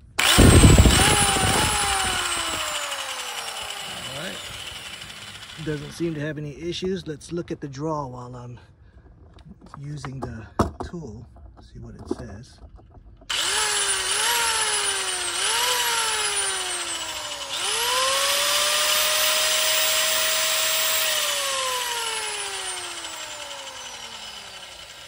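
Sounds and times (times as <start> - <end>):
circular saw motor whine: 0.0 - 6.2, 13.3 - 25.0.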